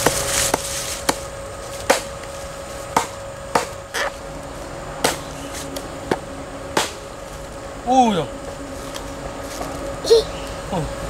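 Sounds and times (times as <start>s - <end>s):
chopping into bamboo: 1.9s - 2.1s, 2.9s - 4.1s, 5.0s - 5.3s, 6.8s - 7.0s.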